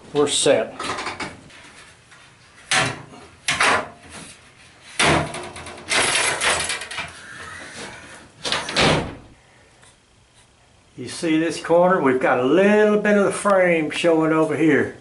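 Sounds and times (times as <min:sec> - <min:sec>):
hatch door banging shut: 0:05.0 - 0:07.0, 0:08.4 - 0:09.3
metal ladder clanking and rattling: 0:05.0 - 0:07.1.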